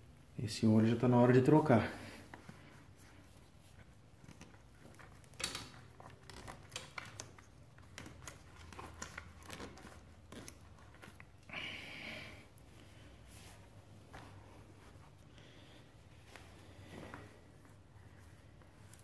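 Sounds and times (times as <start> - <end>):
small clicks and knocks: 4.2 - 11.3.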